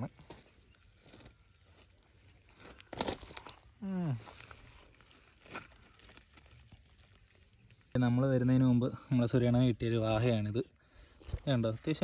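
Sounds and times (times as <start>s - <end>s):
net rustling on gravel: 0.3s - 7.9s
person wordless vocal sound: 3.8s - 4.4s.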